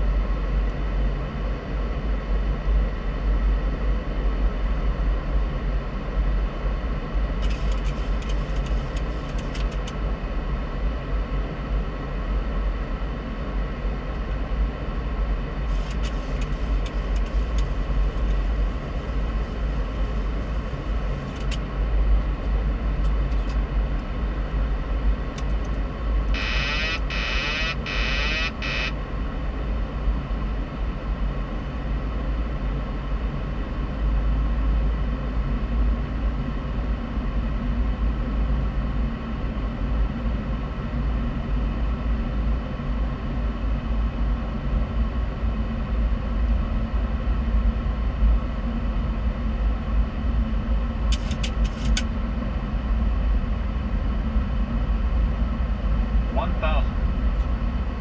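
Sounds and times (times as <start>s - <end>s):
airflow and engine rumble: 0.0s - 58.0s
high electronic alert tone: 26.3s - 29.0s.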